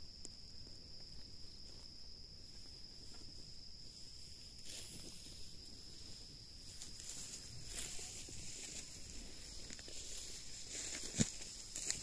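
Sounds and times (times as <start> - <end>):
high-pitched insect drone: 0.0 - 12.0.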